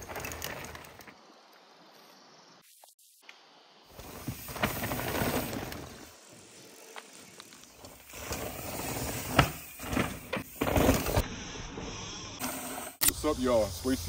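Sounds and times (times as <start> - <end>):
bike tyres on dirt: 0.0 - 14.0
bike knocking over bumps: 7.8 - 11.2.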